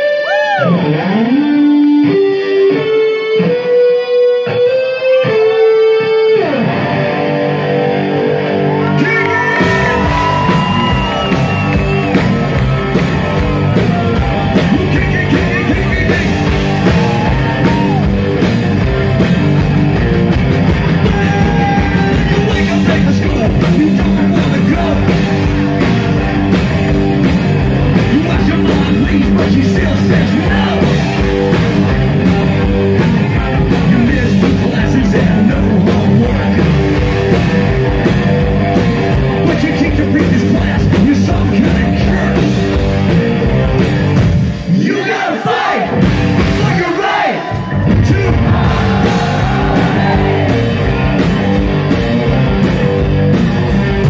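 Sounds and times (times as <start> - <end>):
electric guitars: 0.0 - 44.8, 45.5 - 54.0
drum kit: 9.0 - 54.0
person singing: 21.0 - 25.8, 28.0 - 31.2, 33.6 - 37.1, 39.4 - 42.8.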